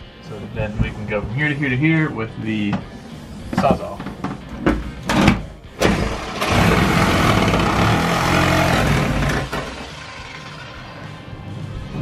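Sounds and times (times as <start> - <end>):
reciprocating saw cutting wood: 5.8 - 11.0.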